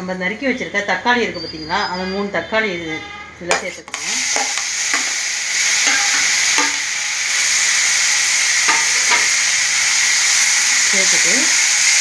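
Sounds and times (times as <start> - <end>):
tomatoes sizzling in hot oil: 3.5 - 12.0.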